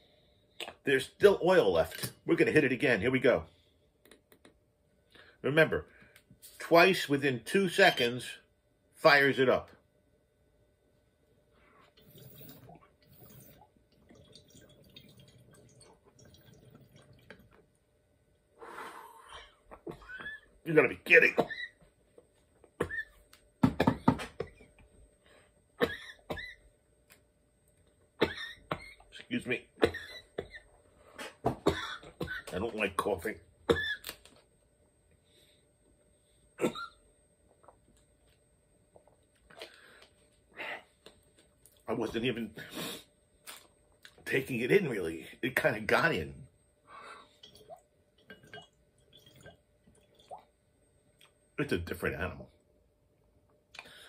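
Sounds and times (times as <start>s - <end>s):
water bubbling in glass pipe: 12.0s - 17.6s, 47.4s - 50.5s
man coughing: 25.8s - 26.5s, 36.6s - 37.0s.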